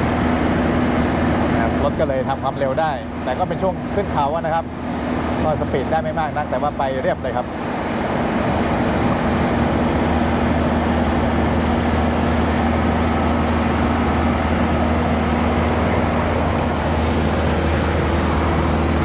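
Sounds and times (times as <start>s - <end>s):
vehicle engine drone: 0.0s - 19.0s
wind noise: 7.4s - 19.0s.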